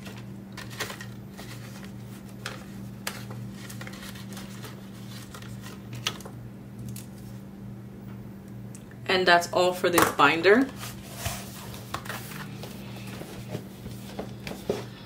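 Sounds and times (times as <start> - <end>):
paper rustling: 0.0 - 7.4, 10.7 - 14.9
steady low hum: 0.0 - 15.0.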